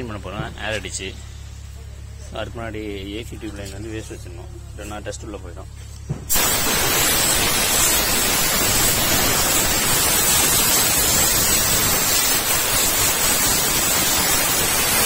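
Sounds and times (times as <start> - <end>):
compressed air hissing: 6.3 - 15.0.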